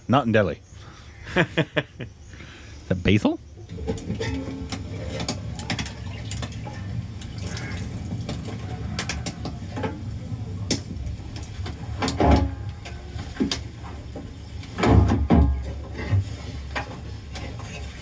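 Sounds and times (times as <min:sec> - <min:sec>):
steamer plates clicking and knocking: 0:03.6 - 0:18.0.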